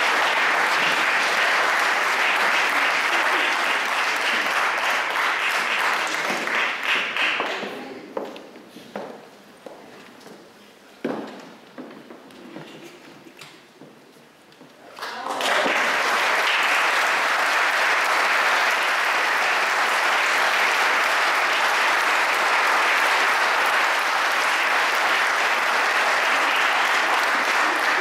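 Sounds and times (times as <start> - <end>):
audience applauding: 0.0 - 7.6, 14.9 - 28.0.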